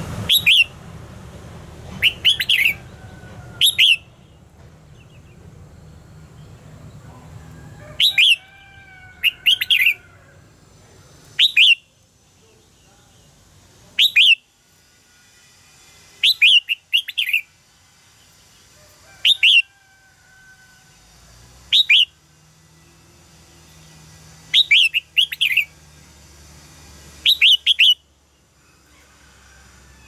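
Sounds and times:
songbird singing: 0.2s - 0.8s, 1.8s - 14.5s, 16.2s - 17.5s, 18.2s - 19.7s, 21.6s - 26.2s, 26.9s - 29.1s.

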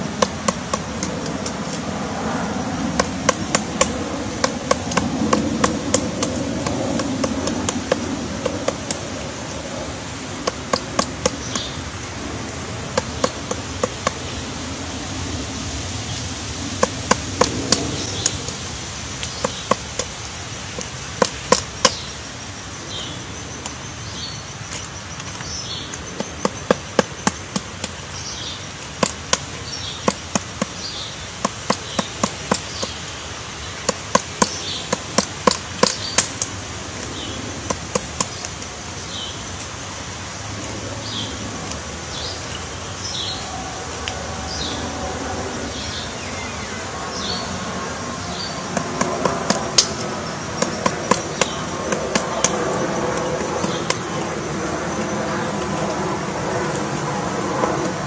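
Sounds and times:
woodpecker knocking on wood: 0.0s - 1.9s, 2.8s - 14.5s, 16.1s - 22.2s, 24.6s - 38.8s, 48.2s - 56.0s.

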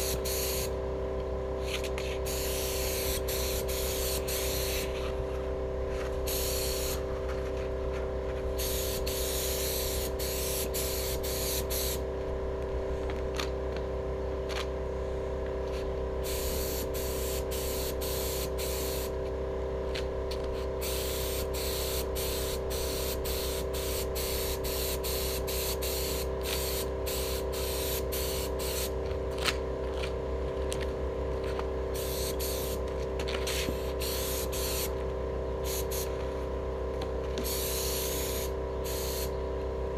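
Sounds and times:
spray gun hissing: 0.0s - 0.7s, 2.2s - 5.0s, 6.2s - 7.0s, 8.6s - 12.0s, 16.2s - 19.2s, 20.8s - 28.9s, 32.0s - 32.8s, 33.5s - 34.9s, 35.6s - 36.2s, 37.4s - 39.3s
steady hum: 0.0s - 39.9s.

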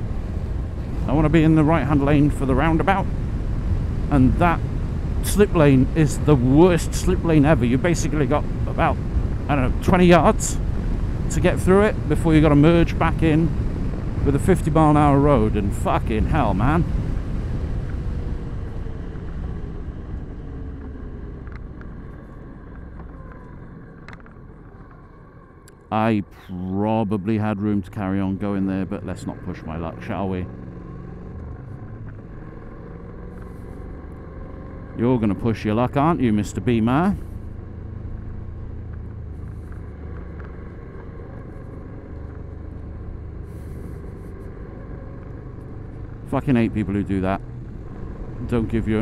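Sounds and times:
wind noise: 0.0s - 22.0s
wind and road noise: 0.0s - 49.0s
motorcycle engine running: 30.0s - 49.0s.

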